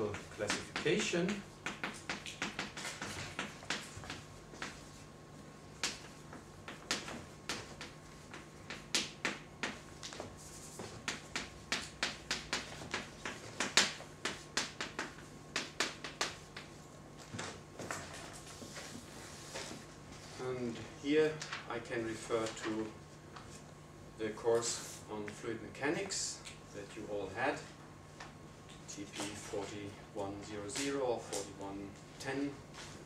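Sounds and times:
faint steady hum: 0:00.0 - 0:33.0
chalk tapping on blackboard: 0:00.1 - 0:05.0, 0:05.8 - 0:16.8.

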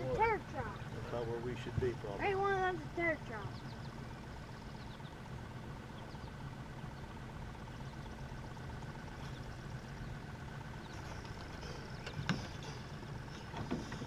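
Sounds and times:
boat motor humming: 0:00.0 - 0:14.0.

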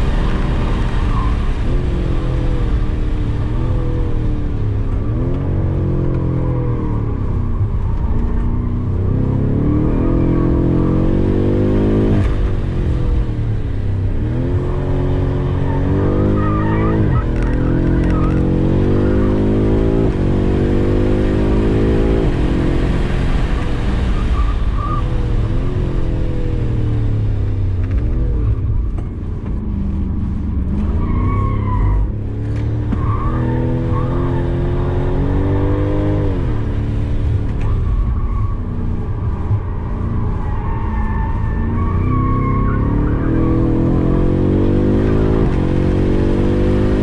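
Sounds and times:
car engine revving: 0:00.0 - 0:47.0
tyre squeals: 0:15.6 - 0:19.4, 0:37.6 - 0:43.9.

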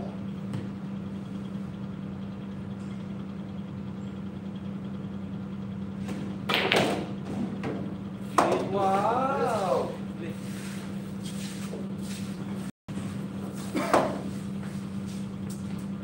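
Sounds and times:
steady low hum: 0:00.0 - 0:16.0
pool cue striking ball: 0:06.4 - 0:08.8.

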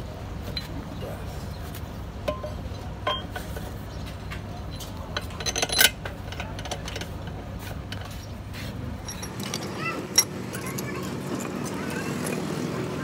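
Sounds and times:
metal parts clinking and knocking: 0:04.7 - 0:08.1, 0:09.0 - 0:12.8.

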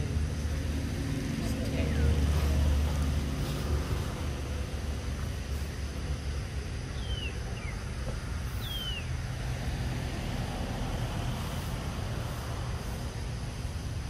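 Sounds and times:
low outdoor rumble: 0:00.0 - 0:14.0
high whistled calls: 0:06.9 - 0:07.9, 0:08.5 - 0:09.2.

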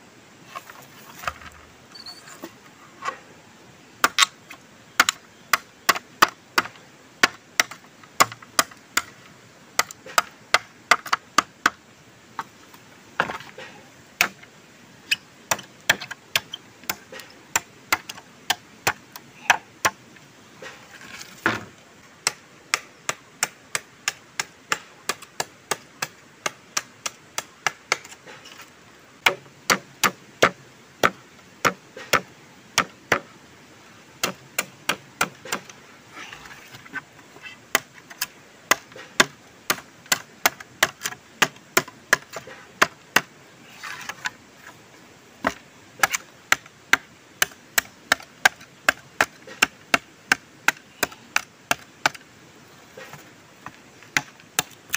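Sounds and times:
machete chopping bamboo: 0:05.0 - 0:09.2, 0:14.2 - 0:14.4, 0:15.5 - 0:20.0, 0:22.2 - 0:28.2, 0:29.2 - 0:33.3, 0:34.2 - 0:35.7, 0:37.7 - 0:44.3, 0:45.4 - 0:52.2, 0:54.1 - 0:54.8.

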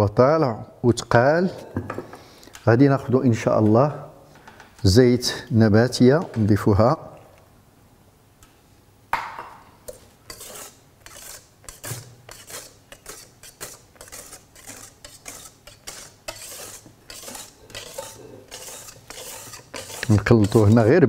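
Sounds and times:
whisk scraping and clinking bowl: 0:09.9 - 0:21.0.

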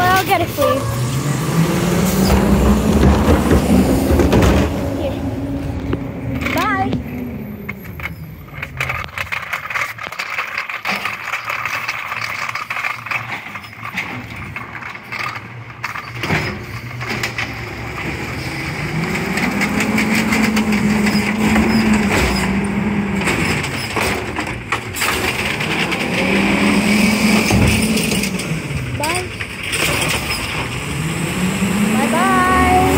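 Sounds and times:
garbage truck engine revving: 0:00.0 - 0:32.9
clicks and rattles: 0:05.7 - 0:30.8.

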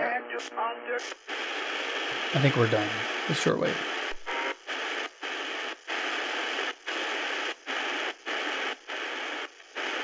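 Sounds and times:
radio static hissing: 0:00.0 - 0:10.0.

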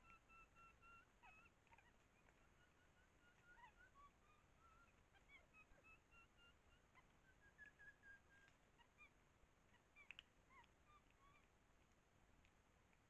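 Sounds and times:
high chirping animal calls: 0:00.0 - 0:11.5.

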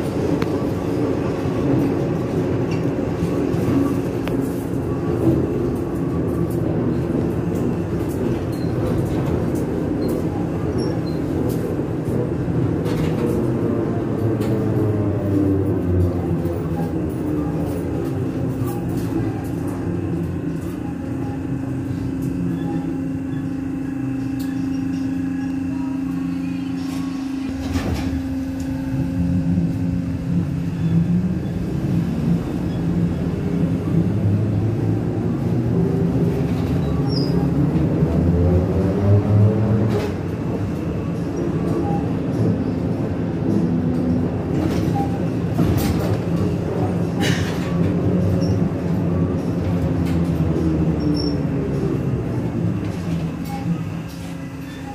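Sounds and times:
ride rumble: 0:00.0 - 0:54.9.

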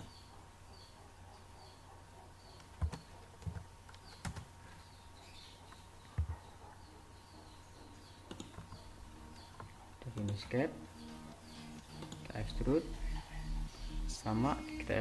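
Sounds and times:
faint bird chirps: 0:00.0 - 0:03.3
steady low hum: 0:04.5 - 0:15.0
computer mouse and keyboard clicks: 0:08.3 - 0:08.8, 0:09.4 - 0:10.6, 0:11.9 - 0:12.4.

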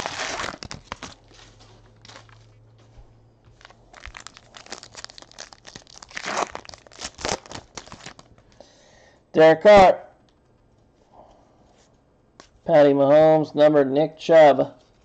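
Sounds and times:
wrapper crinkling and tearing: 0:00.0 - 0:02.6, 0:03.6 - 0:08.5.

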